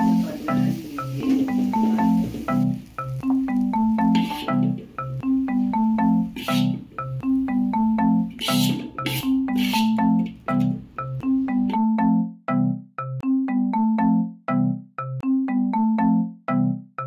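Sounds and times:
marimba-like mallet melody: 0.0 - 17.0
scraping noises: 4.0 - 4.8, 6.3 - 6.9, 8.3 - 10.2.

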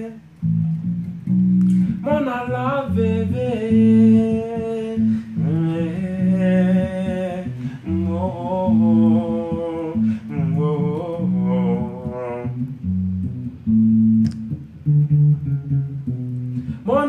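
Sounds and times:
man singing slow melody: 0.0 - 0.3, 1.7 - 12.9, 16.7 - 17.0
electric bass guitar: 0.0 - 17.0.

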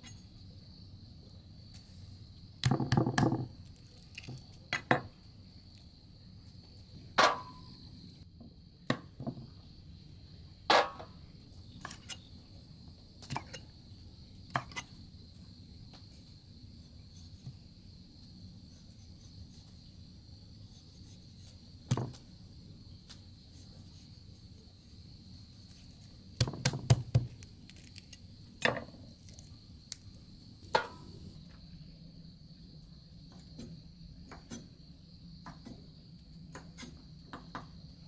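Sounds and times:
objects knocking and clattering: 2.6 - 3.6, 8.9 - 9.6.

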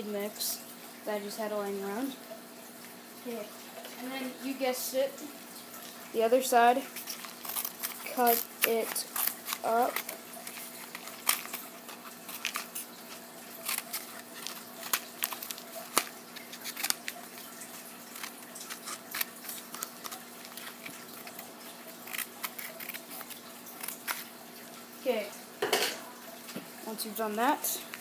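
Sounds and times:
faint steady hum: 0.0 - 28.0
scissors cutting cardboard: 7.0 - 17.3, 18.0 - 24.3.

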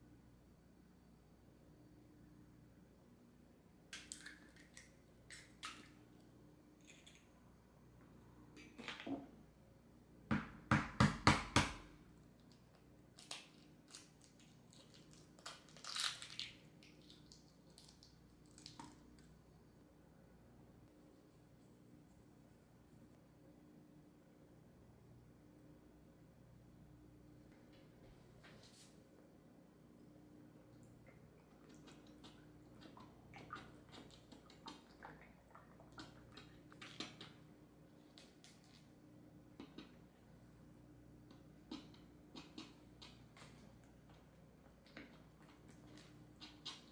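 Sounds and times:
eggshell crackling: 31.0 - 38.9.

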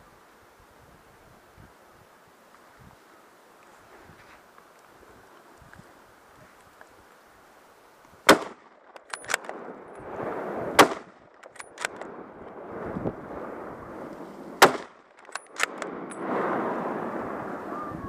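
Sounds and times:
rifle shots: 8.3 - 9.8, 10.6 - 12.2, 14.6 - 16.4.

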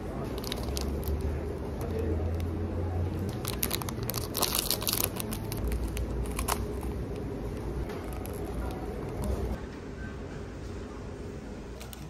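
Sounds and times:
low steady hum: 0.0 - 12.0
plastic wrappers crinkling: 0.3 - 2.5, 3.1 - 7.3, 7.9 - 9.3.

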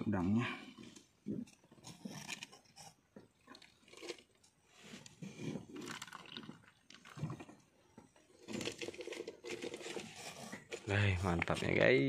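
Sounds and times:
person chewing and crunching: 3.4 - 4.4.

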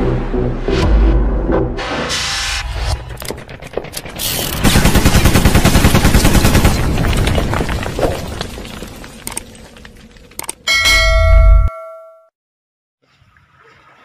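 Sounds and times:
rapid machine gun fire: 4.6 - 7.0.

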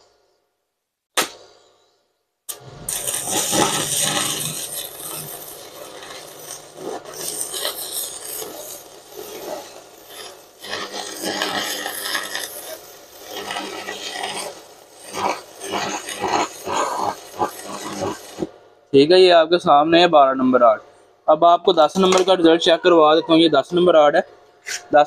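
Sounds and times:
welding arc crackling: 2.5 - 19.3, 21.7 - 22.8.

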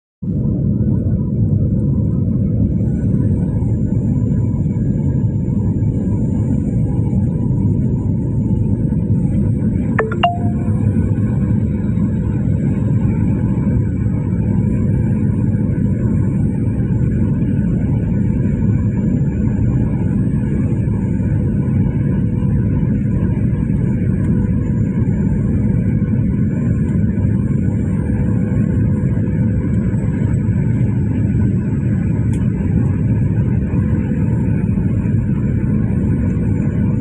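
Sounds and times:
jet engine rumble: 13.6 - 37.0.

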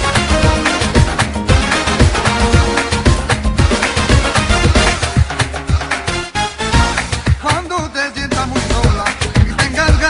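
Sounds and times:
upbeat dance music: 0.0 - 10.0.

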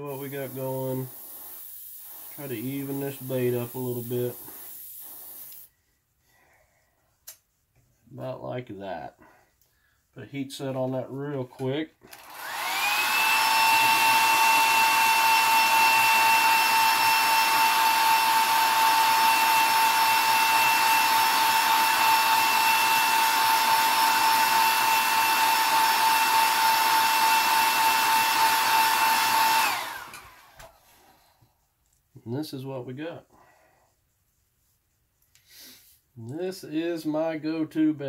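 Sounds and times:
hot-air dryer motor whine: 12.1 - 31.0.

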